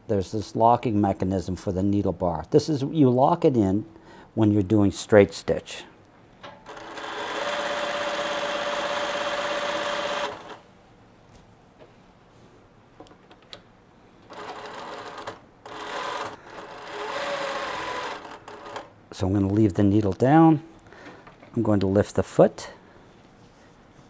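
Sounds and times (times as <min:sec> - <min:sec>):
sewing machine stitching: 0:06.7 - 0:10.6, 0:14.3 - 0:18.9.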